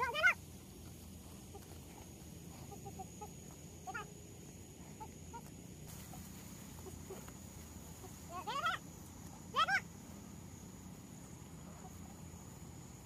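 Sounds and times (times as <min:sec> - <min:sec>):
chickens clucking: 0:00.0 - 0:04.0, 0:04.7 - 0:10.0.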